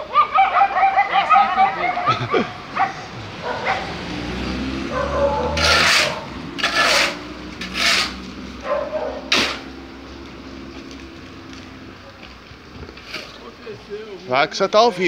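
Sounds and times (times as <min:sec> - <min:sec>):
shovel scraping wet concrete: 0:05.4 - 0:08.4, 0:09.2 - 0:09.8.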